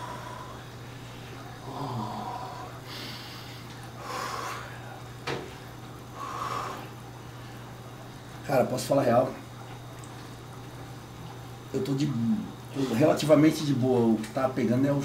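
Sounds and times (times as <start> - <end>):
man breathing hard: 0.0 - 5.0, 6.2 - 7.7
steady low hum: 0.0 - 15.0.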